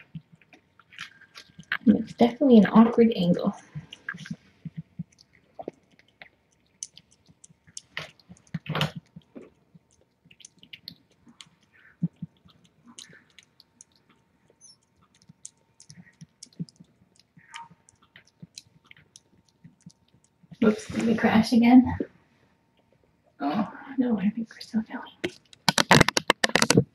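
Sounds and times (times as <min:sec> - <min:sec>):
cat chewing wet food: 0:00.0 - 0:01.9, 0:03.5 - 0:20.6.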